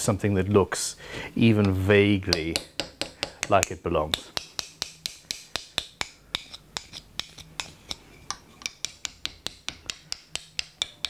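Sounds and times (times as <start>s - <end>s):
hand tool ticking on wood: 2.3s - 11.0s.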